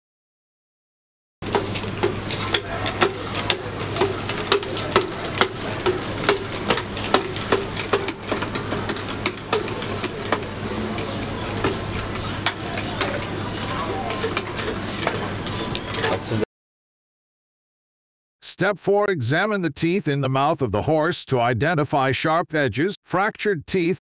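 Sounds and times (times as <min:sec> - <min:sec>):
low mechanical hum: 0:01.4 - 0:16.4
sharp clicks and knocks: 0:01.5 - 0:16.3.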